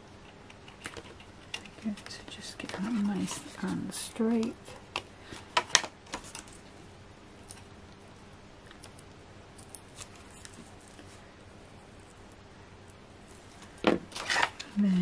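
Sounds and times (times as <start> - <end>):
card stock crackling and tapping: 0.2 - 6.6.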